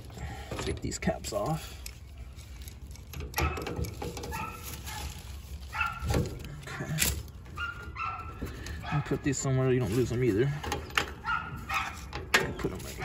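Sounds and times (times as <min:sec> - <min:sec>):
metal caps and tool clicking: 0:00.0 - 0:07.7.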